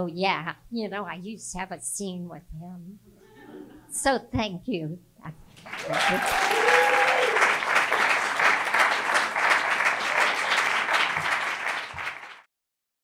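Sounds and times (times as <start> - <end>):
audience applauding: 5.6 - 12.5.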